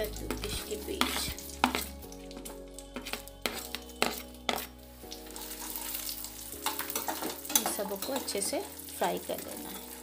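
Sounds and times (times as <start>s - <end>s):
background music with held tones: 0.0s - 10.0s
spatula stirring frying nuts: 0.0s - 10.0s
metal spoon clinking on plate and pan: 6.6s - 8.4s.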